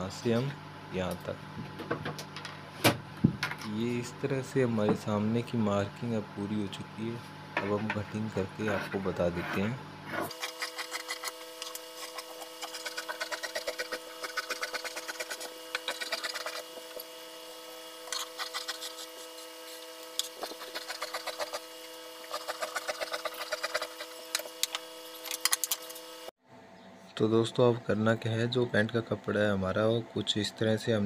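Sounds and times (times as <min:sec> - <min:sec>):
shears snipping cloth: 0:10.2 - 0:17.2, 0:18.0 - 0:26.1.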